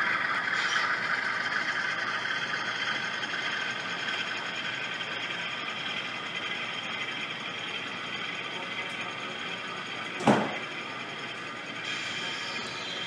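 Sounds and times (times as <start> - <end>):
model trains mechanical drone: 0.0 - 13.0
brief knock: 10.2 - 10.6.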